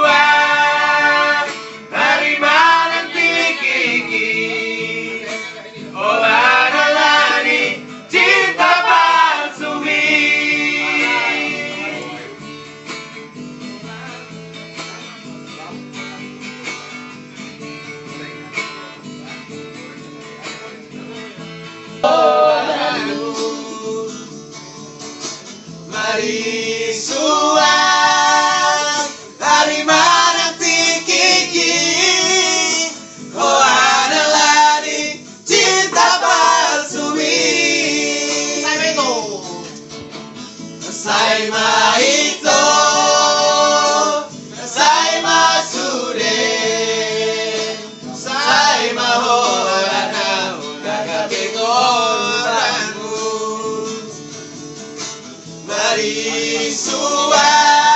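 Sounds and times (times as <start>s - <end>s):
men singing together: 0.0s - 12.3s, 22.0s - 24.6s, 25.9s - 39.7s, 40.7s - 54.4s, 55.4s - 57.9s
acoustic guitar: 0.0s - 57.9s.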